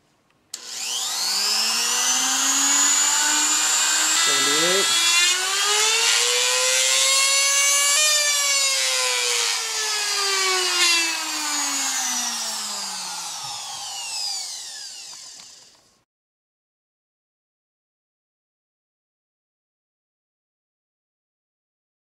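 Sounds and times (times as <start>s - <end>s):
router motor whine: 0.6s - 16.0s.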